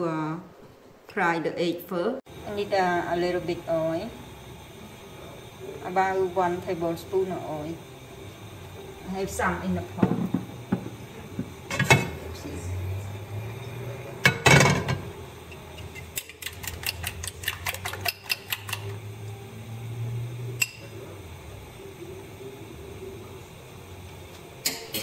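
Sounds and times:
kitchenware knocks and clatters: 0:10.0 - 0:12.2, 0:14.3 - 0:15.0
eggs beaten in glass bowl: 0:15.8 - 0:19.0.

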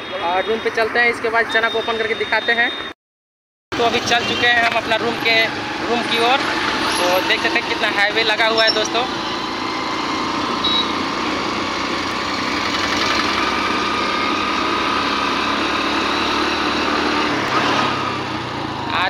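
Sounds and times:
road noise rush: 0:00.0 - 0:02.9, 0:03.7 - 0:19.0
motorcycle engine running: 0:08.9 - 0:17.5.

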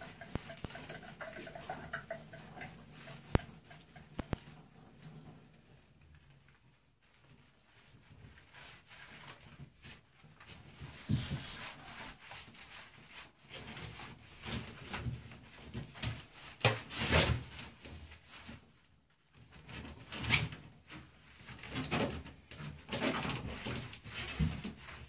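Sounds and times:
wet rubbing of dog fur: 0:00.0 - 0:18.9.

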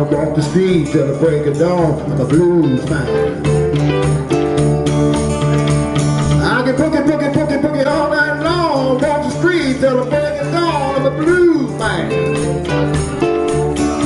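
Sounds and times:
man singing: 0:00.0 - 0:03.4, 0:06.4 - 0:12.3
electric and acoustic guitars: 0:00.0 - 0:14.0.

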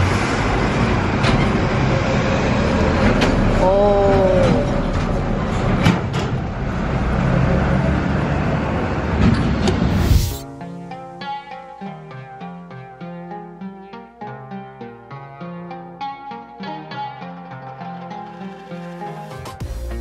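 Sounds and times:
road traffic noise: 0:00.0 - 0:11.2.

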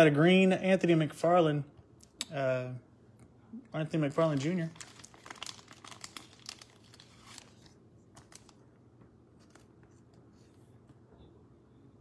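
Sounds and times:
plastic sleeve crinkling: 0:03.9 - 0:08.8.

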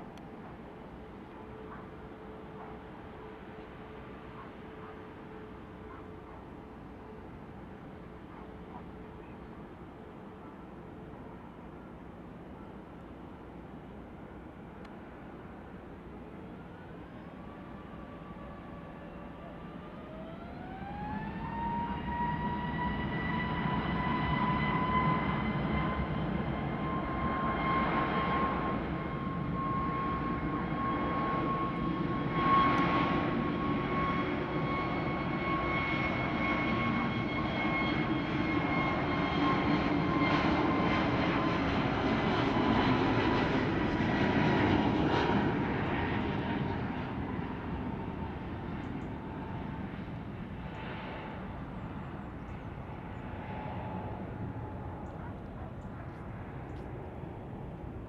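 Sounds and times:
jet engines whining: 0:16.6 - 0:58.0.

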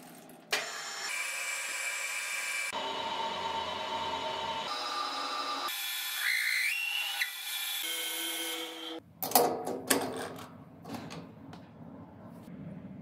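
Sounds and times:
metal lathe cutting whine: 0:00.7 - 0:09.0.

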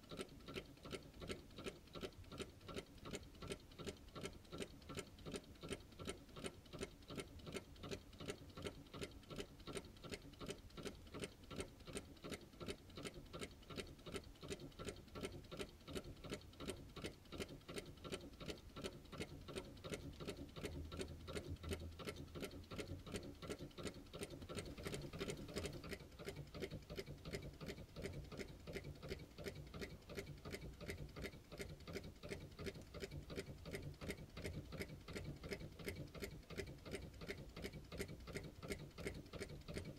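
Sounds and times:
engine mechanism clicking evenly: 0:00.0 - 0:39.9.

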